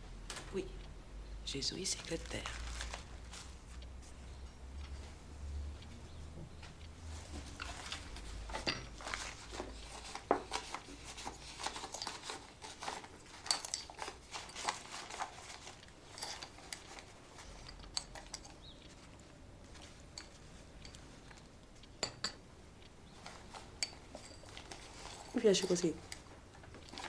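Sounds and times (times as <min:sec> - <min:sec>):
banknotes rustling: 0:01.6 - 0:05.1, 0:07.0 - 0:21.4, 0:23.1 - 0:27.0
china and spoon clinking: 0:22.0 - 0:22.4.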